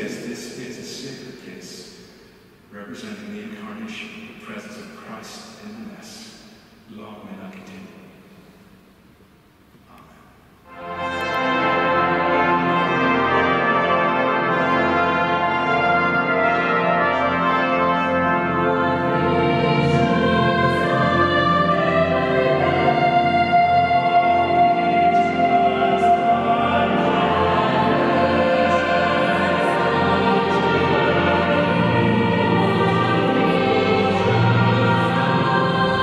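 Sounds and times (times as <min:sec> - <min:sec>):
choir singing: 0:10.7 - 0:36.0.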